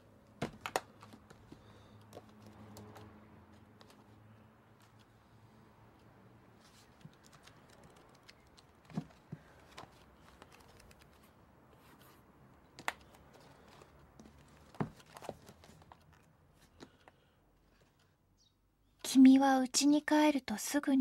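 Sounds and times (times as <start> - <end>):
rustling book pages: 0.4 - 5.2, 6.0 - 18.2.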